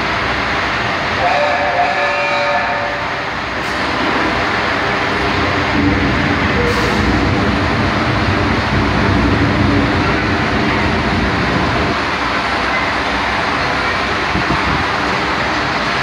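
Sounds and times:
locomotive venting steam: 0.0 - 16.0
low rumble: 4.8 - 12.3.

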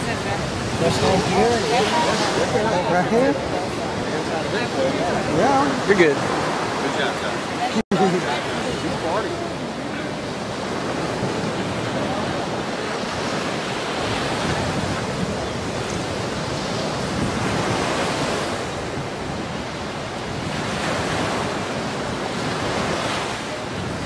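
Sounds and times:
surf washing onto beach: 0.0 - 24.0
wind buffeting microphone: 0.0 - 24.0.

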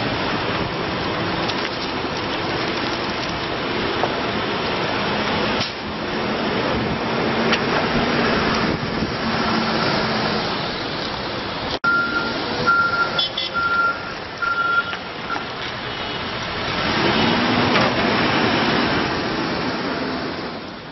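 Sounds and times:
reverse alarm beeps: 11.8 - 15.4.

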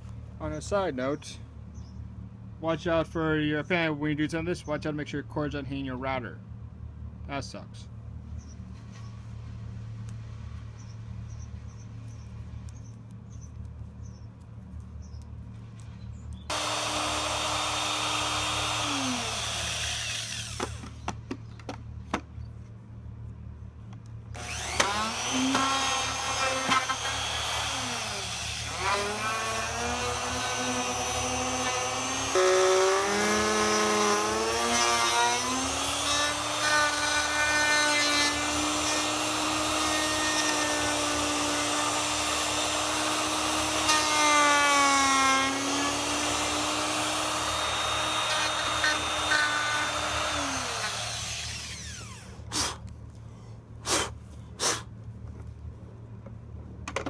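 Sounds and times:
router motor cutting wood: 16.5 - 20.8, 24.4 - 52.3.

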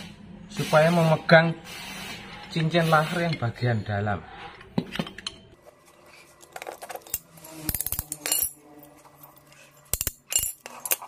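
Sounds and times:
metallic clinks of steel parts: 6.6 - 11.0.

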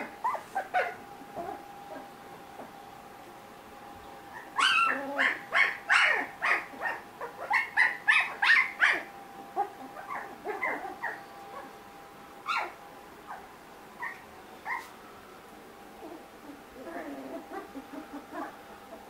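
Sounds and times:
puppies whimpering: 0.0 - 2.8, 4.3 - 11.7, 16.0 - 19.0
puppies yipping: 0.0 - 2.8, 4.3 - 11.8, 12.4 - 15.0, 16.0 - 19.0.

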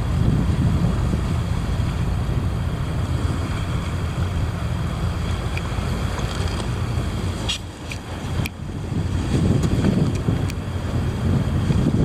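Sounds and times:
sea surf on rocks: 0.0 - 12.0
wind buffeting microphone: 0.0 - 12.0.

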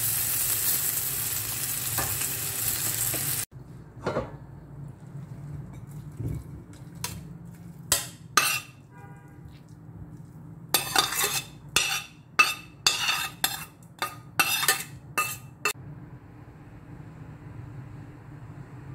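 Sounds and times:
metal spoon scraping pan: 7.9 - 8.9, 10.7 - 15.8.

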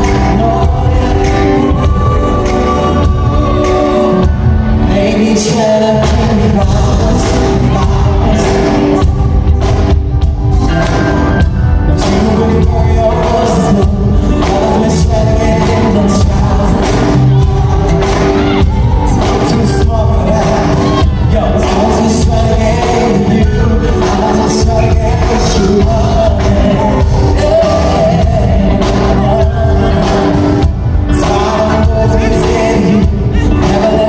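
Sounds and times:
man singing into a microphone: 0.0 - 10.0, 10.6 - 34.0
live band playing: 0.0 - 34.0.

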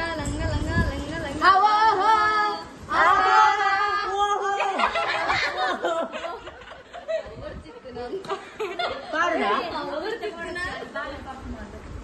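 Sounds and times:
women laughing and chattering: 3.3 - 11.8.

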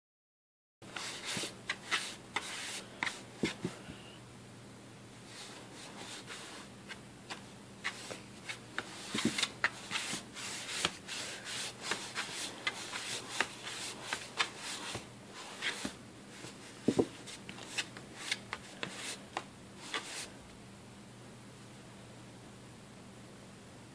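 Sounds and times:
cat scratching cardboard box: 5.8 - 16.0.

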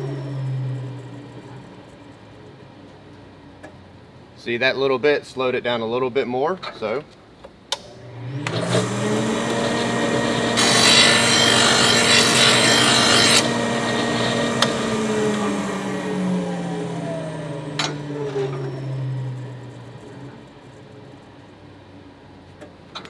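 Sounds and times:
sharpener motor running: 8.4 - 15.6
blade grinding on wheel: 8.5 - 14.8.

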